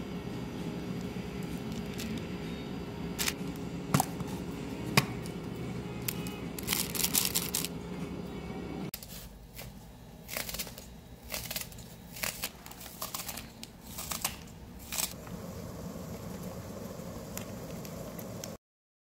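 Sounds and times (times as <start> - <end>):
steady low hum: 0.0 - 18.6
plastic packet crinkling: 6.1 - 7.8.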